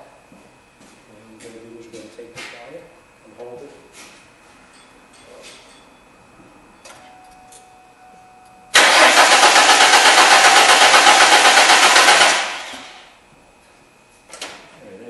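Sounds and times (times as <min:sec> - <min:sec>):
car engine cranking: 0:08.7 - 0:13.0.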